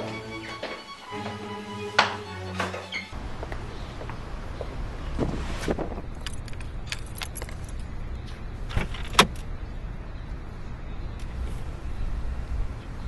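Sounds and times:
low street rumble: 0.0 - 13.0
keys jangling in car door lock: 6.2 - 7.8.

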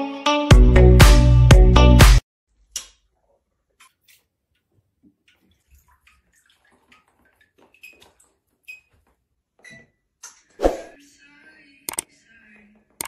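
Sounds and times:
water splashes and drips: 3.7 - 9.2.

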